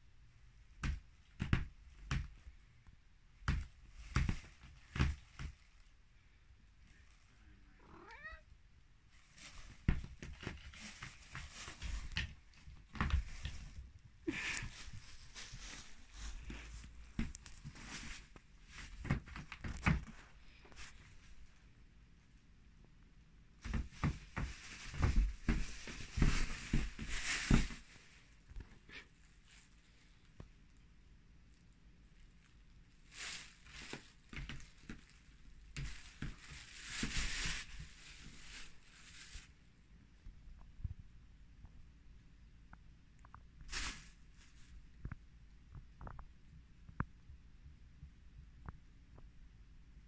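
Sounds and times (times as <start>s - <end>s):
cat meowing: 7.8s - 8.5s
plastic bag crinkling: 9.1s - 19.8s, 32.2s - 39.5s.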